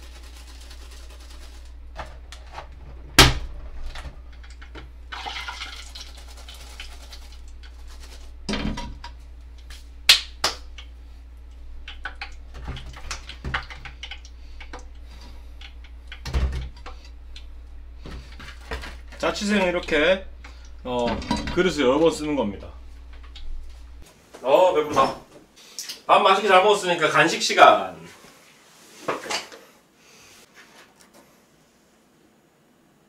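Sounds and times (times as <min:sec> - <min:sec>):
liquid splashing: 0:05.1 - 0:08.2.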